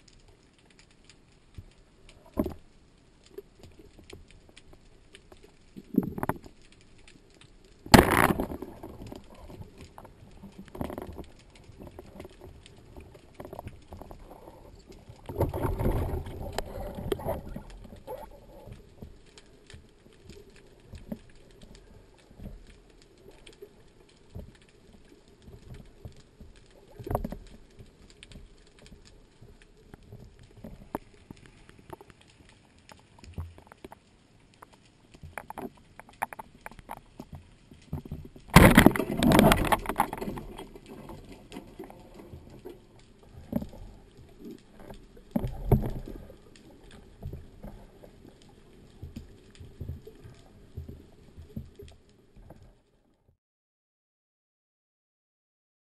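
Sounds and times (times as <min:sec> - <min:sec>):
underwater clicks and crackles: 0:00.0 - 0:53.3
rush of water: 0:38.0 - 0:51.0.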